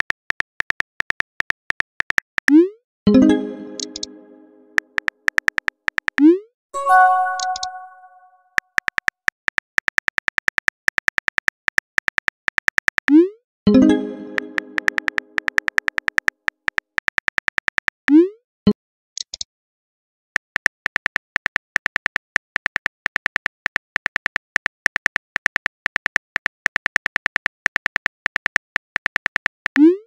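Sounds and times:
phone keyboard typing clicks: 0:03.7 - 0:04.2, 0:14.3 - 0:17.9
message sent swoosh: 0:06.8 - 0:08.4.

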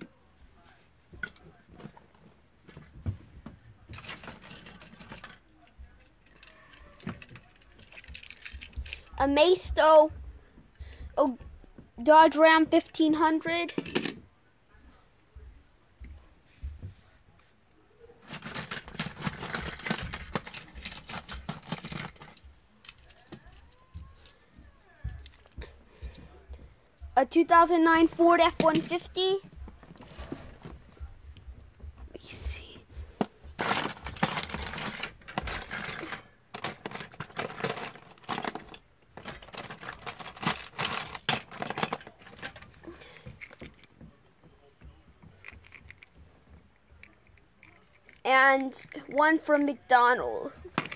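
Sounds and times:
plastic toys clattering: 0:01.1 - 0:10.0, 0:12.7 - 0:14.2, 0:18.2 - 0:24.4, 0:25.1 - 0:26.2, 0:27.4 - 0:30.7, 0:32.2 - 0:44.1, 0:45.1 - 0:49.9, 0:50.5 - 0:50.9.

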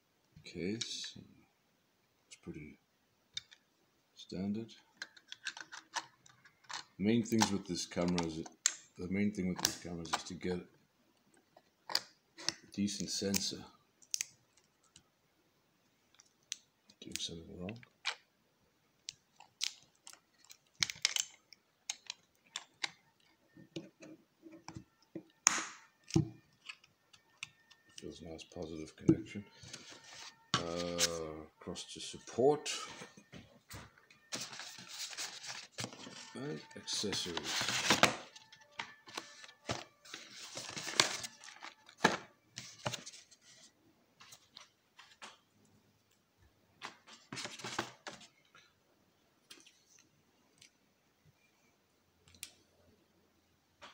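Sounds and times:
cardboard rustling and scraping: 0:34.3 - 0:38.4, 0:39.0 - 0:45.2.

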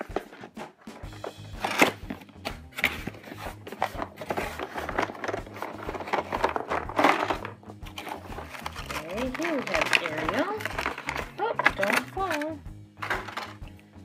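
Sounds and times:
cardboard box scraping and rustling: 0:02.8 - 0:11.1.

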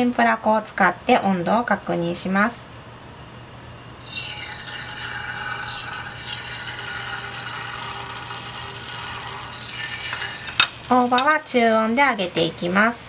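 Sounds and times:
batter sizzling in hot oil: 0:03.8 - 0:13.0.

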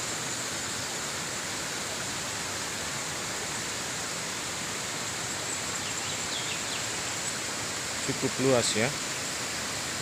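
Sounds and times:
river water rushing over rocks: 0:00.0 - 0:10.0.

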